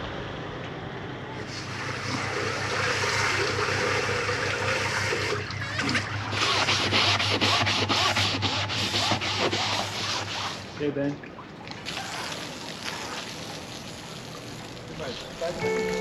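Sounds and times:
water rushing from a garden hose: 1.4 - 11.1, 11.7 - 15.6
scouring pad scrubbing: 4.6 - 10.8.

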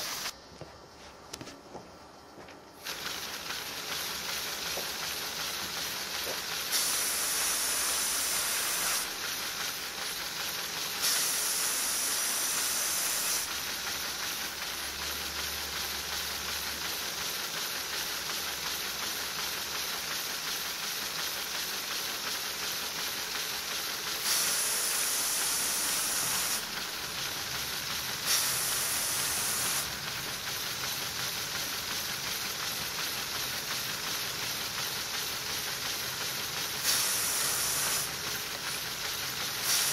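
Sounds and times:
compressed air hissing: 0.0 - 0.3, 2.8 - 13.7, 24.2 - 30.5, 36.7 - 39.9.

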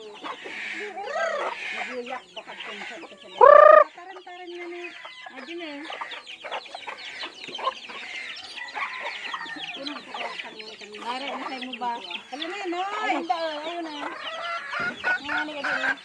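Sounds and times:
chickens clucking and chirping: 0.0 - 16.0
loud chicken call: 2.8 - 4.0.

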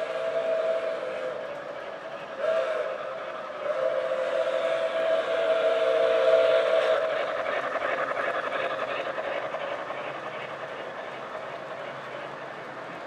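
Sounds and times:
model train whistle: 0.0 - 1.8, 2.4 - 7.2
freight cars rumbling on track: 0.0 - 13.0.

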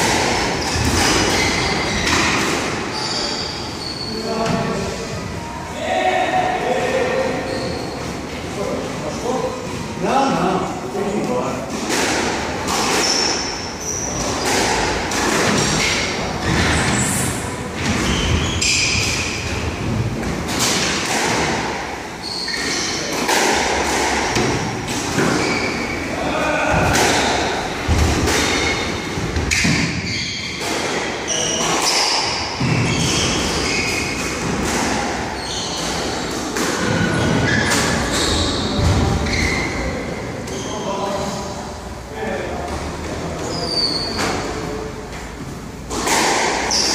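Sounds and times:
squash ball hitting rackets: 0.0 - 2.8, 11.7 - 17.0, 17.8 - 21.9, 22.5 - 25.6, 26.6 - 39.2, 45.8 - 46.9
shoes squeaking on wooden floor: 0.4 - 4.8, 7.4 - 8.3, 12.9 - 20.0, 22.2 - 23.1, 25.1 - 26.1, 28.5 - 30.6, 31.2 - 34.4, 35.2 - 41.0, 43.4 - 44.6.

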